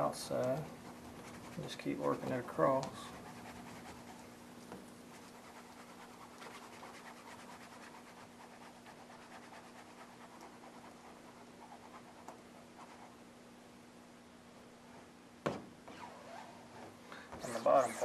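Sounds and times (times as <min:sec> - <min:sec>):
squeegee scraping on vinyl: 0:00.0 - 0:04.3, 0:15.9 - 0:18.0
steady low hum: 0:00.0 - 0:18.0.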